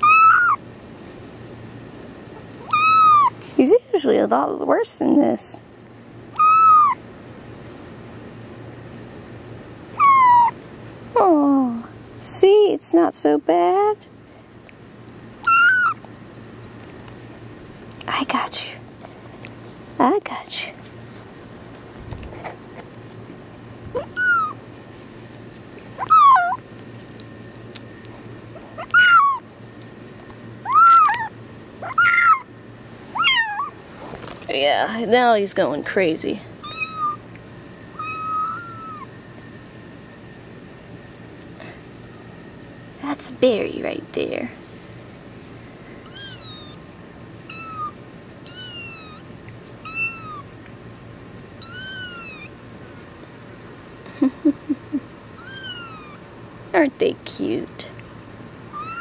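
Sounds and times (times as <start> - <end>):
kitten meowing: 0.0 - 0.6, 2.6 - 3.4, 6.4 - 7.0, 10.0 - 10.6, 15.4 - 16.0, 24.0 - 24.6, 26.0 - 26.6, 28.8 - 29.4, 30.6 - 32.5, 33.1 - 33.8, 36.6 - 37.2, 37.9 - 39.1, 46.0 - 46.8, 47.5 - 50.5, 51.6 - 52.5, 55.4 - 56.2, 58.7 - 59.0.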